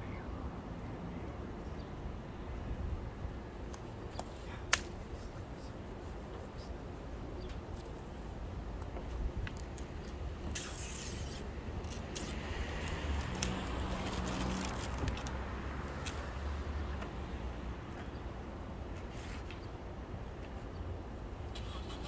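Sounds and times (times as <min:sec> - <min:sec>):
scraping hiss: 0:10.5 - 0:11.5.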